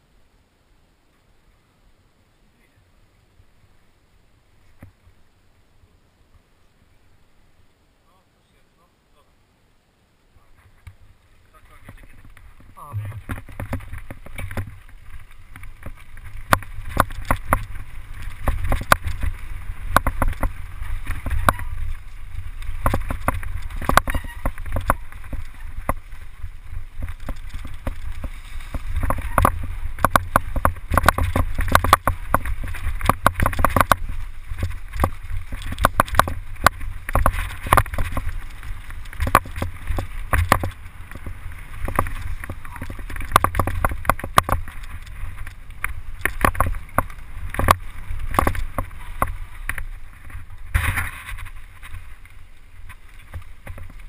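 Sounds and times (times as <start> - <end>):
wind rumble on microphone: 10.5 - 54.0
bike rattling and knocking: 11.6 - 54.0.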